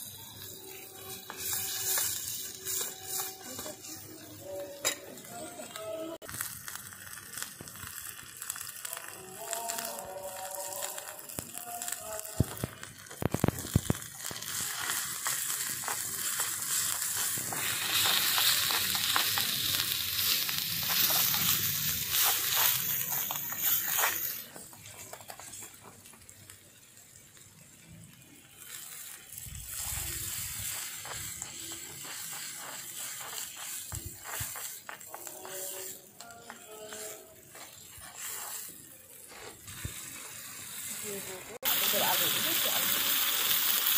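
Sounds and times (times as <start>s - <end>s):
oil sizzling in a pan: 0.0s - 43.9s.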